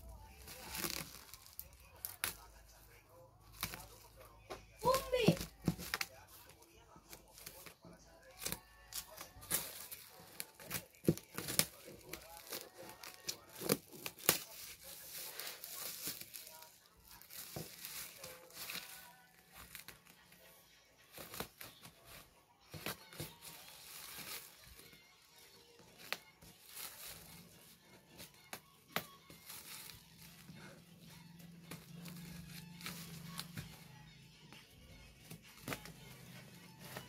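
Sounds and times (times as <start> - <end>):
bubble wrap crinkling and tearing: 0.0 - 34.2
scissors snipping plastic: 7.4 - 16.5.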